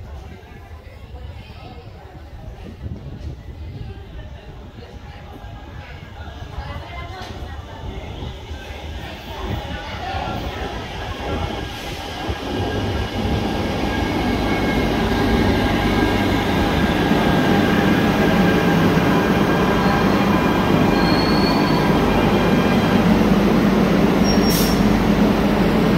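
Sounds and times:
train wheels rumbling: 8.4s - 25.9s.

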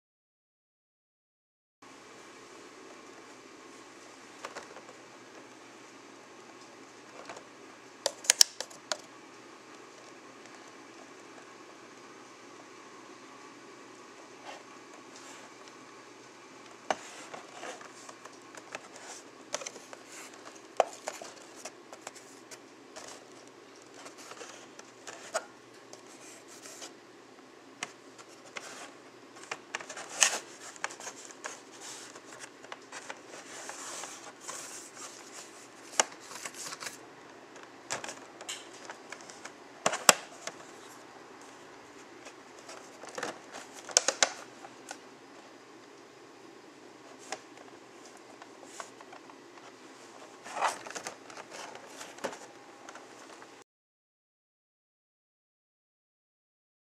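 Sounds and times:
paper catalog rustling: 16.8s - 25.4s, 26.0s - 27.0s, 27.8s - 37.0s, 37.6s - 45.0s, 47.1s - 53.6s
plastic packaging crinkling: 28.2s - 37.0s.

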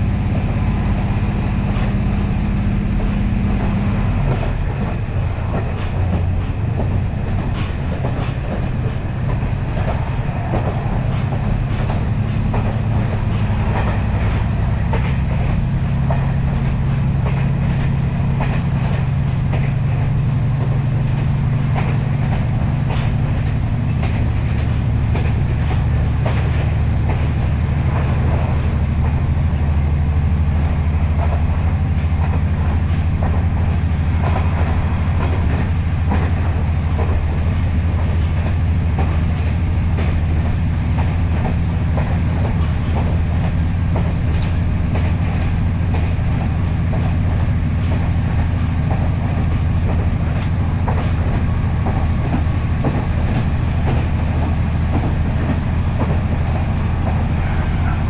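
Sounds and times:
diesel engine drone: 0.0s - 58.0s
wheels clicking over rail joints: 3.0s - 58.0s.

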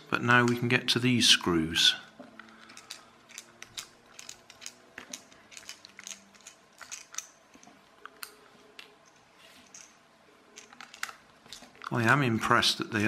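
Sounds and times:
screwdriver clicks and creaks: 2.2s - 10.0s.

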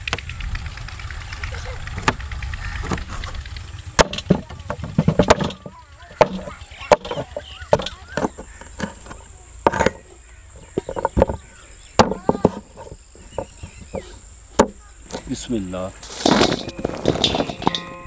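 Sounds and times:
cleaver chopping on wooden board: 4.0s - 5.6s.

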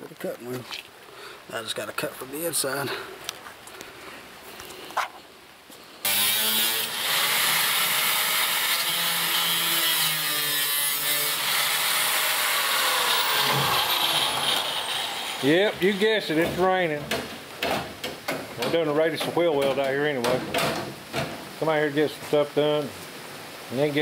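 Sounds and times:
angle grinder cutting sheet steel: 6.1s - 16.6s.

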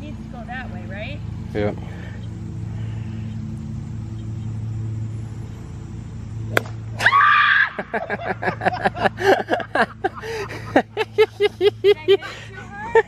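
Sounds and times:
golf cart idling hum: 0.0s - 13.0s
golf ball bursting crack: 6.4s - 7.1s
woman shrieking: 7.0s - 7.8s.

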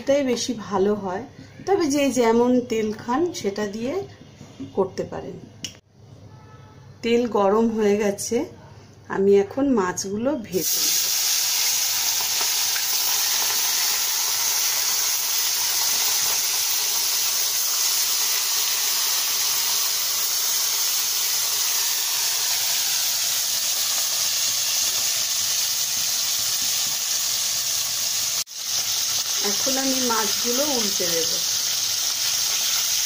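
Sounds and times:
fish frying in hot oil: 10.6s - 33.0s.

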